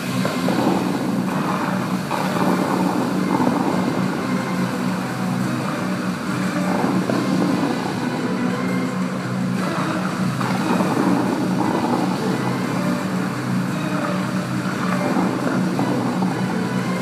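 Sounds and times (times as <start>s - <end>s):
fountain water jets rushing: 0.0s - 17.0s.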